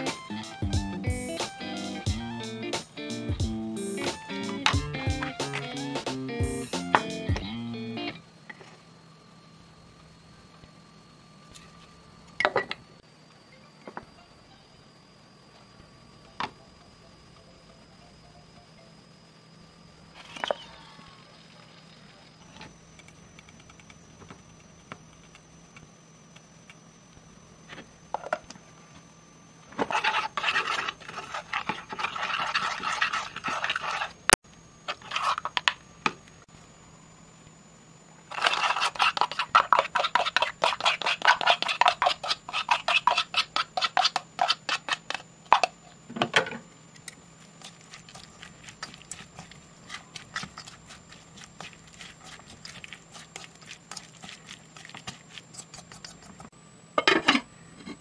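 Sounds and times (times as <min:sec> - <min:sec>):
rhythmic scraping and tapping: 0:00.0 - 0:07.5
faint steady hum: 0:00.0 - 0:58.0
thin high whine: 0:00.0 - 0:58.0.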